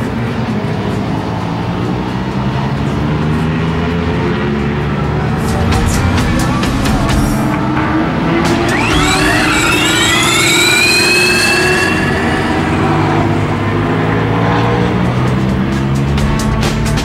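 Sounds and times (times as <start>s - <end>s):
race car accelerating with whine: 0.0s - 17.0s.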